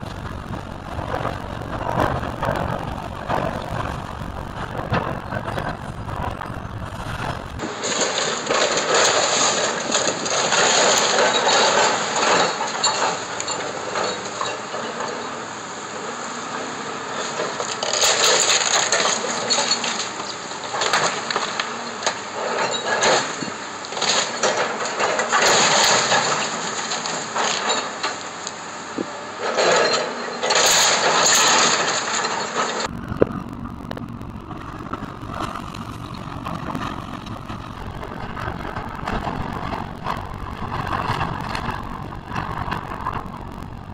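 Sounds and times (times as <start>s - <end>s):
light crunching: 0.0s - 12.4s
debris crashing down: 0.0s - 15.1s, 17.3s - 28.3s, 29.4s - 43.9s
excavator engine running: 0.0s - 43.9s
timber cracking and breaking: 32.8s - 43.9s.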